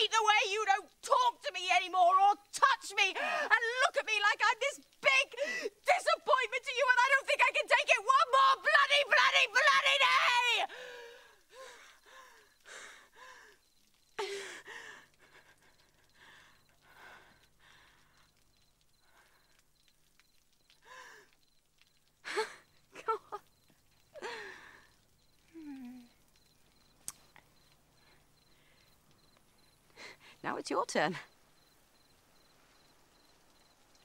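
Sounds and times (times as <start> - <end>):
person sobbing and gasping: 3.2 - 3.5, 14.2 - 16.1, 22.2 - 23.4, 24.2 - 24.8.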